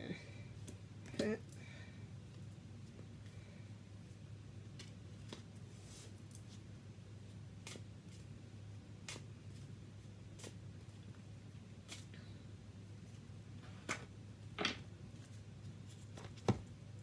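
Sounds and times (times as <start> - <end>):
steady low hum: 0.0 - 17.0
cards being shuffled: 9.0 - 11.0.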